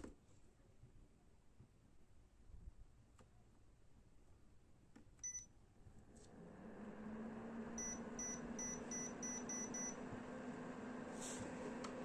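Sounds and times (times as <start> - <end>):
fan humming: 6.3 - 12.0.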